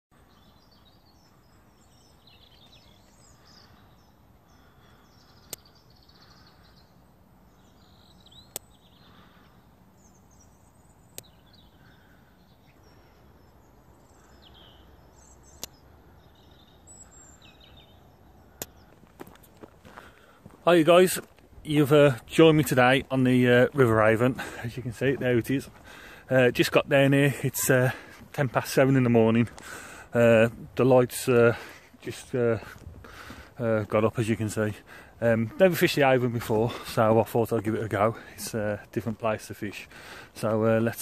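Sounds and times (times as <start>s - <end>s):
birds chirping: 0.1s - 41.0s
outdoor hush: 0.1s - 41.0s
sharp clicks: 5.4s - 5.7s, 8.5s - 8.8s, 11.1s - 11.4s, 15.5s - 15.8s, 18.6s - 18.8s.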